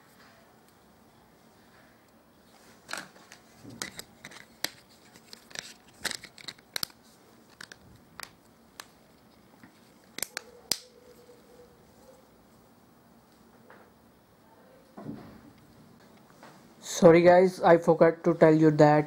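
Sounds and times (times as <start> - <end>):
plastic clicks and scrapes: 2.8 - 8.9.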